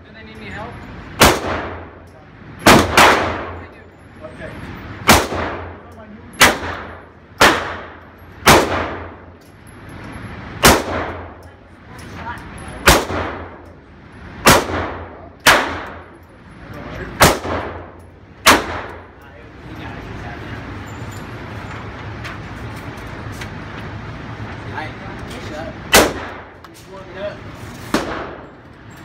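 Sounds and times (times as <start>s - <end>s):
handgun shots echoing indoors: 14.4s - 16.0s, 17.2s - 19.0s.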